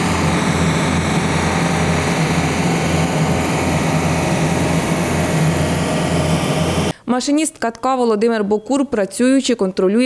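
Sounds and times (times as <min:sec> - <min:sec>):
asphalt roller engine throbbing: 0:00.0 - 0:06.9.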